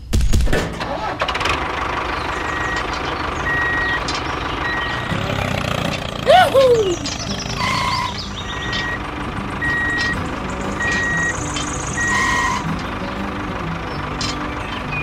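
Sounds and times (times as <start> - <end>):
low engine rumble: 0.7 - 15.0
reversing alarm beeping: 2.4 - 2.8, 3.4 - 5.2, 7.5 - 12.7.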